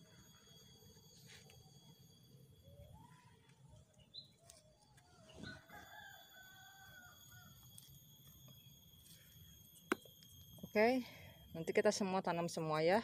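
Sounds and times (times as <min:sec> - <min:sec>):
rooster crowing: 0:05.4 - 0:07.8.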